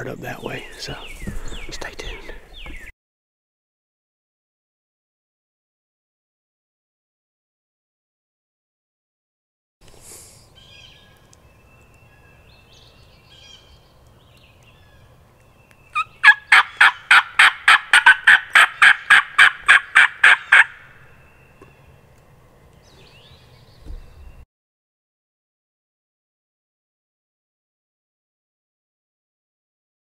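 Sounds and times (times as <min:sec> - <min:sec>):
wild turkey calling: 0:13.3 - 0:13.8, 0:15.9 - 0:21.8.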